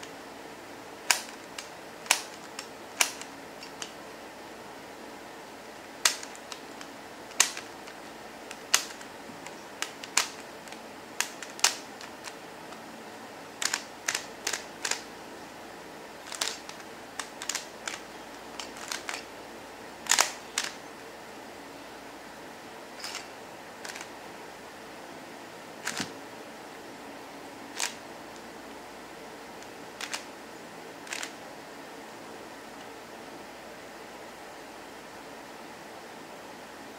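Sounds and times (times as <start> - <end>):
puzzle cube clicking: 1.1 - 4.0, 6.0 - 12.8, 13.6 - 15.1, 16.2 - 19.3, 20.0 - 20.8, 23.0 - 24.1, 25.8 - 26.1, 27.8 - 28.0, 30.0 - 30.3, 31.0 - 31.4.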